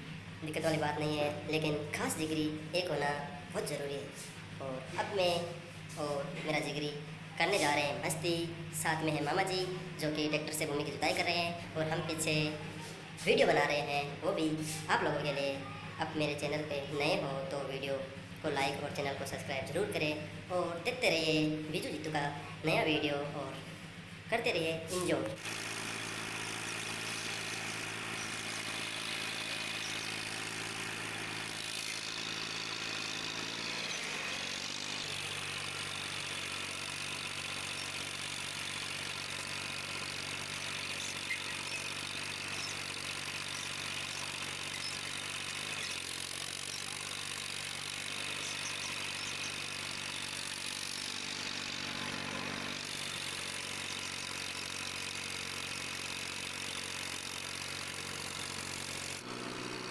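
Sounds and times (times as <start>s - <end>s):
tractor engine running under load: 25.0s - 59.9s.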